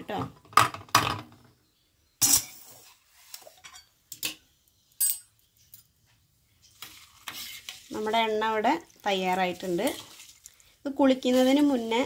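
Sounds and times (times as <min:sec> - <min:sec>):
metal bowls clinking: 0:02.2 - 0:02.8, 0:05.0 - 0:05.9.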